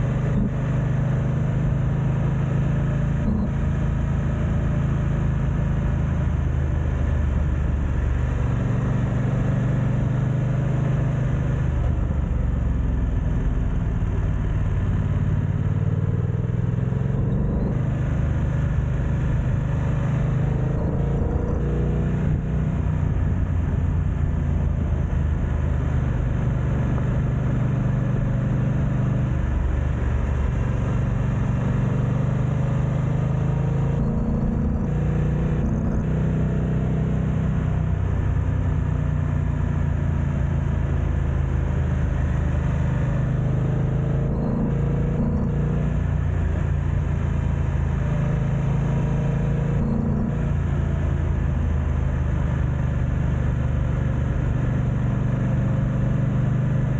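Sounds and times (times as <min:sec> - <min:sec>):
motorcycle engine: 0:10.6 - 0:55.7.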